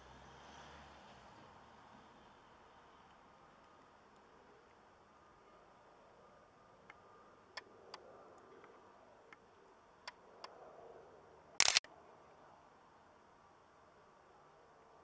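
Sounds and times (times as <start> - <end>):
camera handling clicks: 11.6 - 11.8
loud rasping burst: 11.6 - 11.8.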